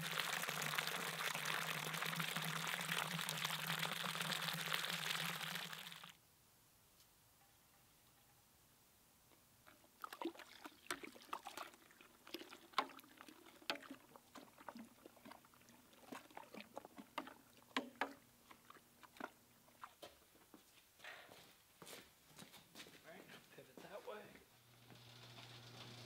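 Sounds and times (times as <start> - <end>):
liquid pouring from glass flask: 0.0 - 6.2, 10.0 - 19.8.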